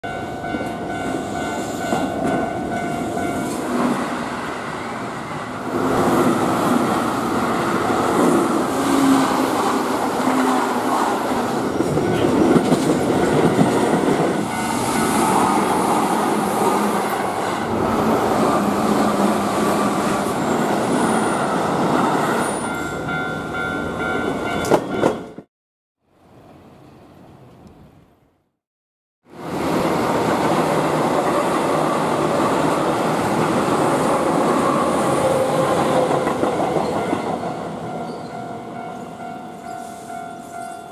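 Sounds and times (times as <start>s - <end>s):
level crossing warning bell: 0.0s - 3.8s, 11.7s - 12.7s, 14.4s - 17.8s, 22.5s - 25.5s, 36.6s - 40.9s
electric train passing: 0.0s - 25.4s, 29.3s - 40.9s.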